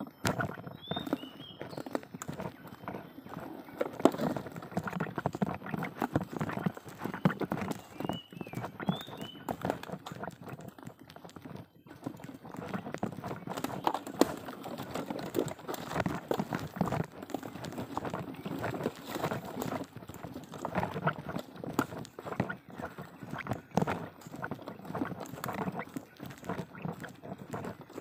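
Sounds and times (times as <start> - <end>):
wheelbarrow rattling over rough ground: 0.0 - 28.0.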